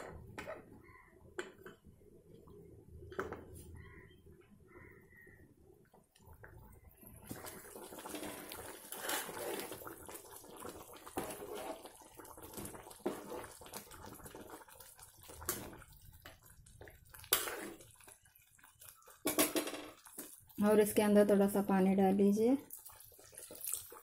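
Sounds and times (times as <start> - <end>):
liquid being stirred in a pot: 6.9 - 19.3, 22.6 - 24.0.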